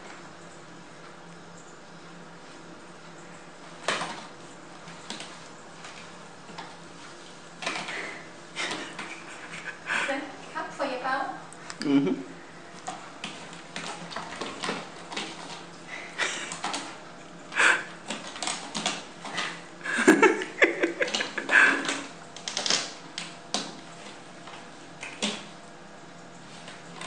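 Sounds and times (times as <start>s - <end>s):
cat scratching rope post: 12.8s - 19.6s.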